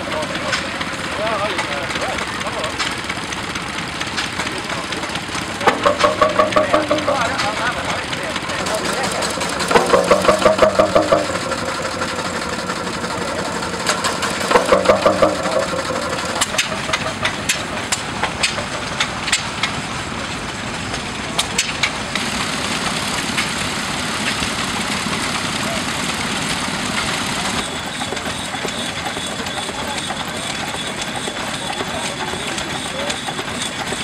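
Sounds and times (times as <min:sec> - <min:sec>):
rhythmic exhaust beats: 0:00.0 - 0:22.0, 0:24.2 - 0:34.0
mechanical engine clatter: 0:00.0 - 0:34.0
sharp ticks: 0:05.3 - 0:07.9, 0:08.6 - 0:19.8.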